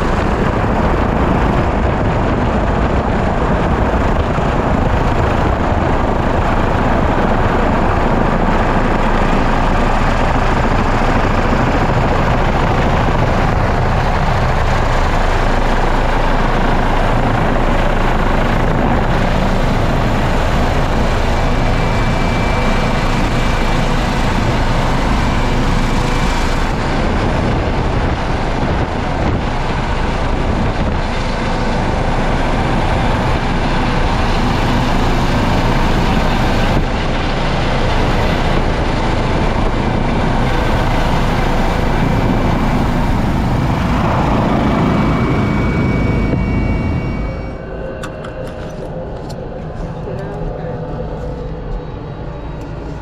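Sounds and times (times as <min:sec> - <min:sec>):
helicopter rotor and engine: 0:00.0 - 0:53.0
thin high whine: 0:17.8 - 0:53.0.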